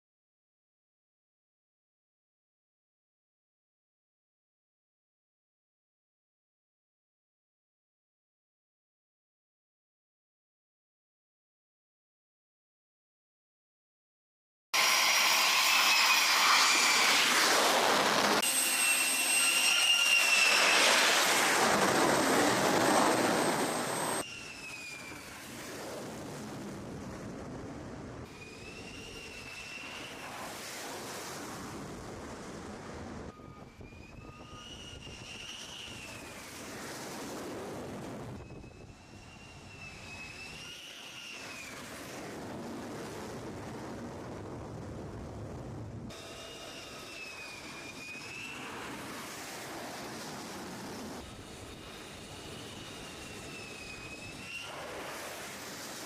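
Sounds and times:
high turbine whine: 0:14.8 - 0:56.0
jet fighter engines running: 0:14.8 - 0:56.0.

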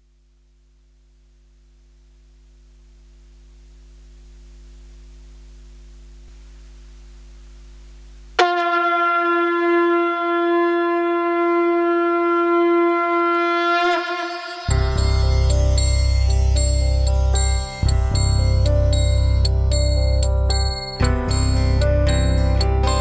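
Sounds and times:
faint electrical hum: 0:00.0 - 0:08.4
wind instrument long note: 0:08.4 - 0:15.5.

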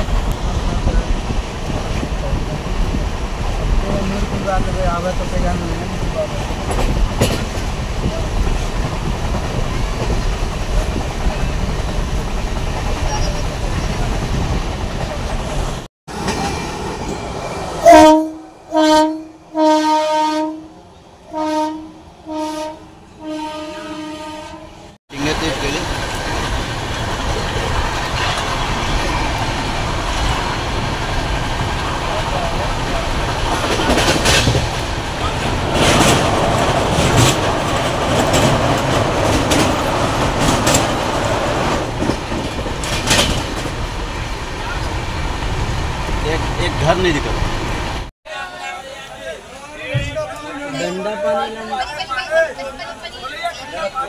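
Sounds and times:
train running noise: 0:00.0 - 0:54.0
wheels clacking over rail joints: 0:01.6 - 0:15.4, 0:25.2 - 0:47.8
train horn blasts: 0:17.8 - 0:24.9.

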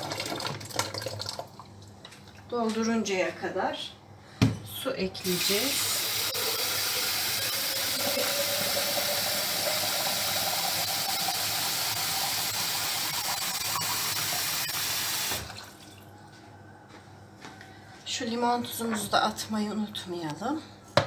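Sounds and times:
water filling a container: 0:00.0 - 0:01.7, 0:05.3 - 0:16.0.

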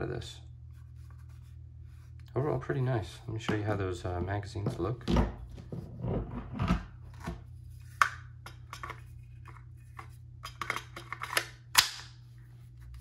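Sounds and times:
metal magazines clicking and knocking: 0:10.4 - 0:12.2.

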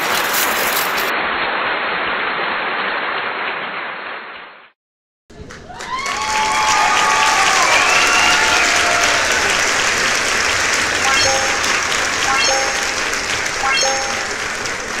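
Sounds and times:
crowd applause: 0:05.3 - 0:15.0
cheering voices: 0:05.4 - 0:15.0
short electronic blips: 0:11.0 - 0:14.6.

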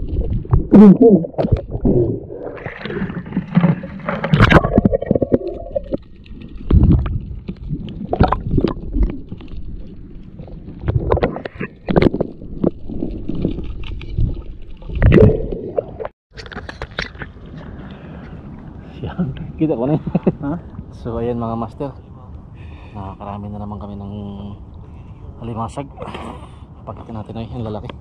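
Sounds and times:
water sloshing and gurgling: 0:00.0 - 0:18.8.

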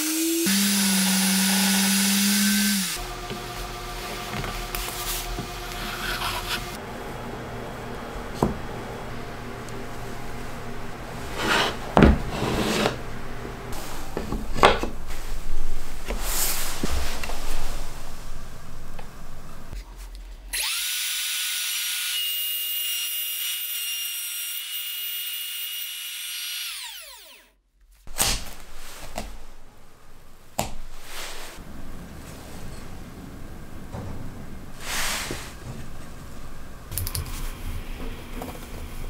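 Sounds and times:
power tool motor running: 0:00.0 - 0:06.8, 0:20.6 - 0:22.4, 0:23.0 - 0:27.5
wooden pieces scraping together: 0:04.1 - 0:06.8.

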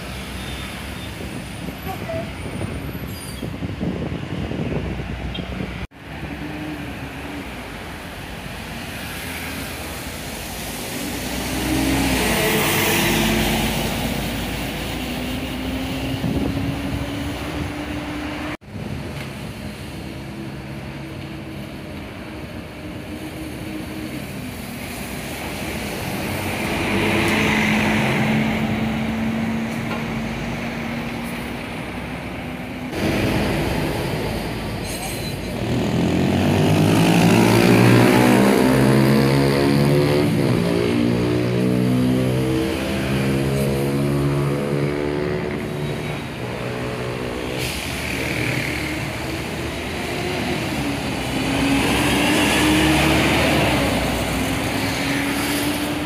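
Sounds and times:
buses accelerating past: 0:00.0 - 0:56.0
street traffic: 0:00.0 - 0:56.0
tyre hiss on road: 0:47.3 - 0:56.0.

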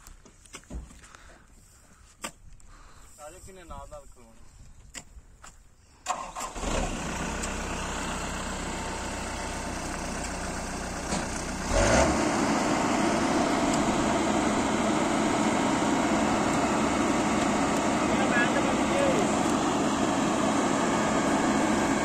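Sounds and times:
diesel engine starting and idling: 0:06.0 - 0:22.0
diesel engine revving: 0:06.1 - 0:22.0.

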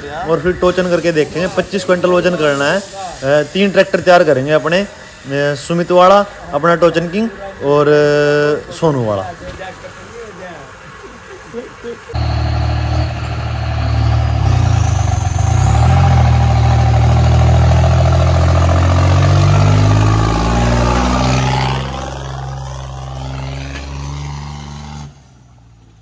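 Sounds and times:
tractor engine running hard: 0:12.2 - 0:25.0.

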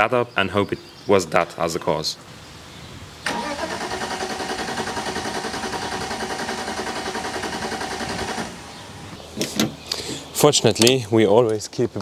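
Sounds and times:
engine cranking without firing: 0:03.2 - 0:08.6.

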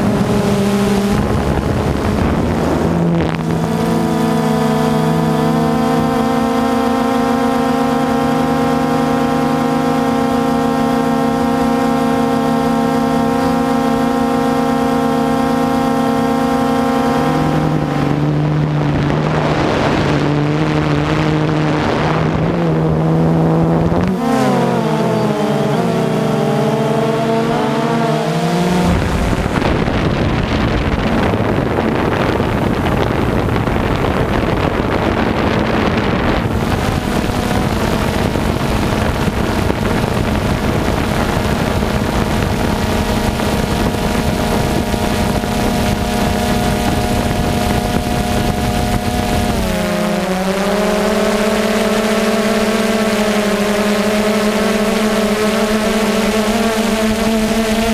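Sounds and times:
drone motors whining: 0:00.0 - 0:57.9
rush of air: 0:28.2 - 0:42.6.

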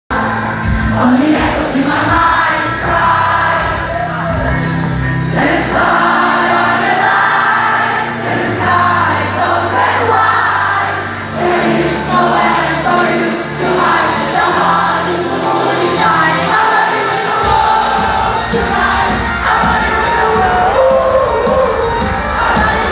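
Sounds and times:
live pop band playing: 0:00.1 - 0:22.9
person singing: 0:11.2 - 0:22.9.

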